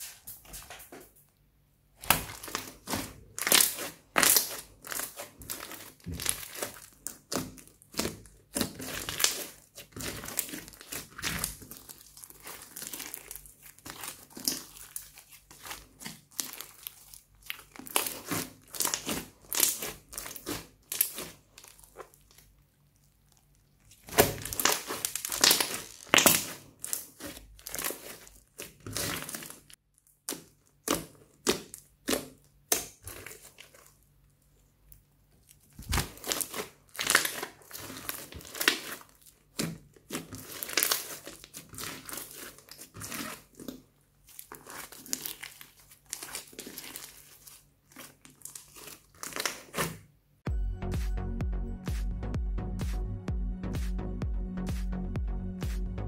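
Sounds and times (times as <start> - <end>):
slime clicking and popping: 2.0 - 15.0, 15.6 - 22.4, 24.0 - 33.8, 35.8 - 43.7.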